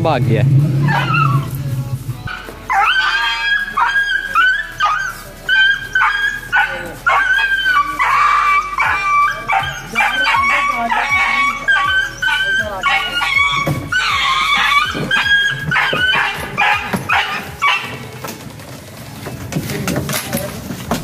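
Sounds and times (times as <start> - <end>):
dog yelping and whining: 0.8 - 1.5, 2.3 - 18.2.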